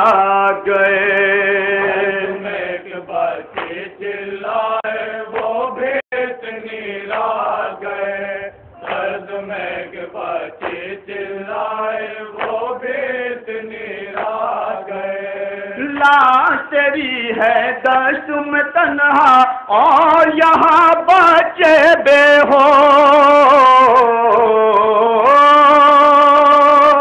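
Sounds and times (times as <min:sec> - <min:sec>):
man chanting a lament: 0:00.0 - 0:02.5.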